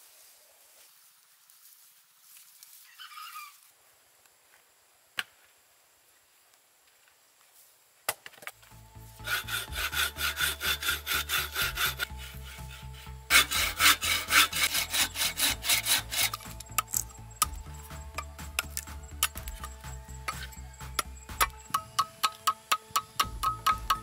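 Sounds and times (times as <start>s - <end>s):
back-and-forth scraping strokes: 8.6s - 24.0s
low background music: 8.6s - 24.0s.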